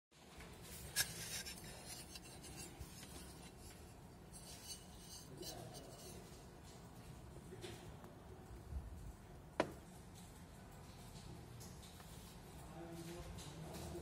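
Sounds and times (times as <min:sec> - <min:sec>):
hand rubbing on metal profile: 0:00.7 - 0:06.4.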